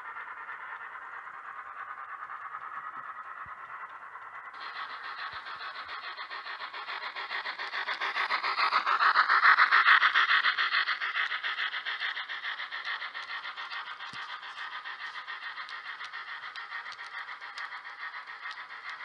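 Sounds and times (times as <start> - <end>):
steam locomotive chuffs from speaker: 4.5 - 19.0.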